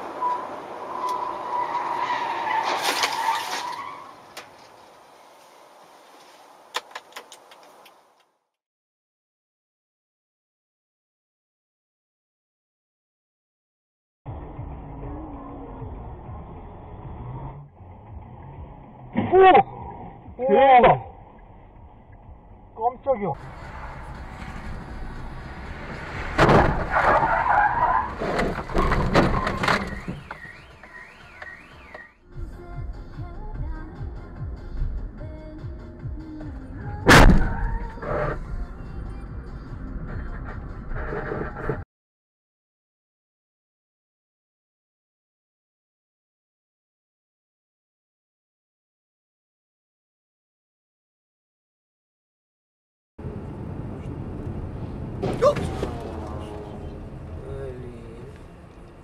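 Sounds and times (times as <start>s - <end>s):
tyres skidding: 0.0s - 8.2s, 23.3s - 32.1s, 37.0s - 38.7s, 53.2s - 59.0s
car crash bang: 23.7s - 30.7s, 37.1s - 37.9s, 55.2s - 56.6s
loud crash impact: 37.1s - 37.6s.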